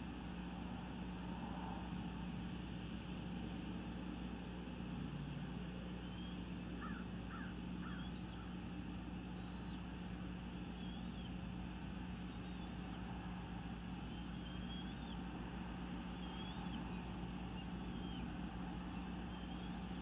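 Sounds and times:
microphone hiss and electrical hum: 0.0 - 20.0
short bird calls: 6.0 - 8.8, 9.5 - 11.6, 13.8 - 20.0.

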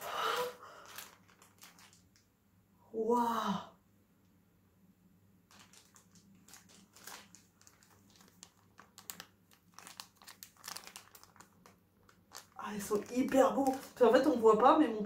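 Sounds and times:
plastic bag crinkling: 0.2 - 2.3, 5.5 - 15.0.

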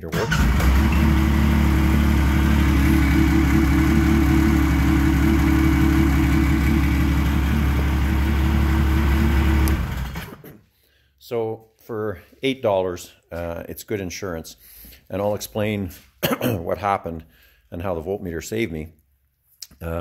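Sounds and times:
snowmobile engine idling: 0.4 - 10.2.

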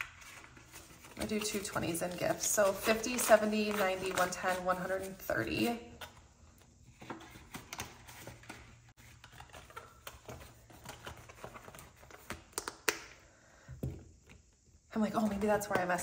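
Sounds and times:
banknotes and plastic pages rustling: 0.0 - 12.6.

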